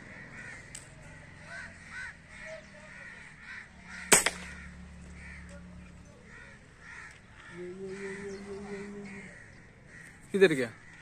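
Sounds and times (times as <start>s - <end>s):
crows cawing: 0.0s - 11.0s
air rifle shot: 4.1s - 4.7s.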